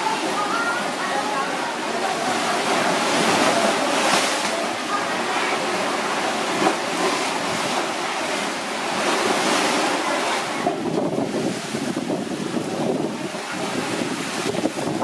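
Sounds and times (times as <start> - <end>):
sea surf washing onto shore: 0.0 - 15.0
wind buffeting microphone: 10.5 - 15.0.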